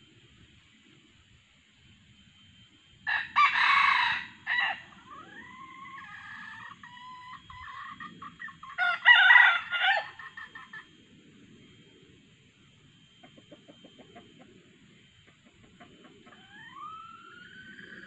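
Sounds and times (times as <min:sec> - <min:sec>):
rooster crowing: 0:03.1 - 0:10.9.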